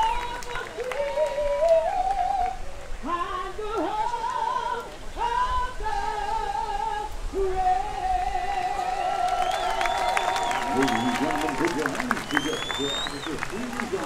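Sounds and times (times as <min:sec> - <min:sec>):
woman singing long notes: 0:00.0 - 0:10.0
background hiss: 0:00.0 - 0:14.0.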